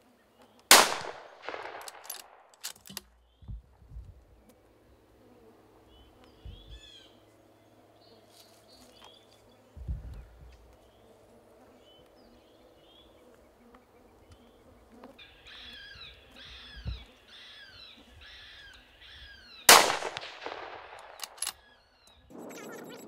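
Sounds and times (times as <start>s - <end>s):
gunshot with echo: 0.7s - 2.5s, 19.7s - 21.5s
short sharp cracks: 0.7s - 3.2s, 19.7s - 21.7s.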